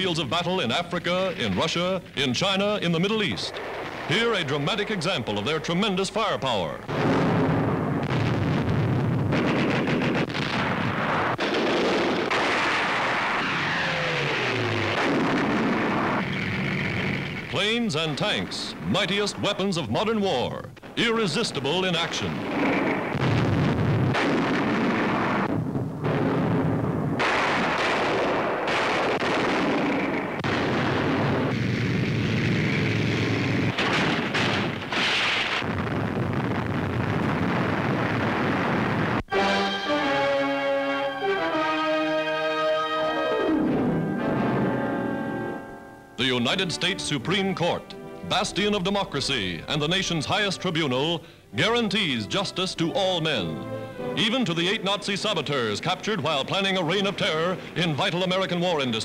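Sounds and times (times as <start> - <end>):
rumble of moving tanks: 0.0 - 19.9, 20.7 - 39.2
gun blasts: 0.0 - 39.3
shell explosions: 0.0 - 39.3, 43.4 - 59.0
tank gunfire: 2.9 - 19.7, 20.8 - 39.2.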